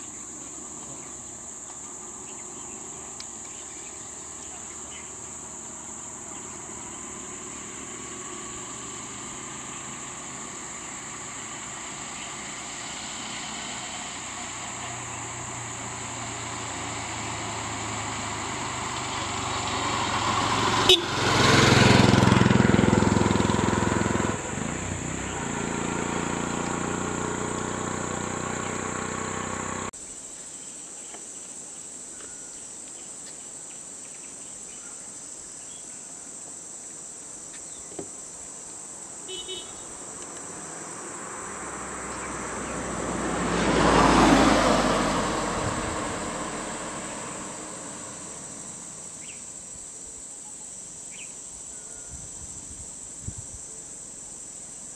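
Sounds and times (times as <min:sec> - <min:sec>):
insects chirring: 0:00.0 - 0:54.9
vehicle engine running: 0:00.1 - 0:30.0
vehicle passing by: 0:00.4 - 0:29.9, 0:39.5 - 0:49.4.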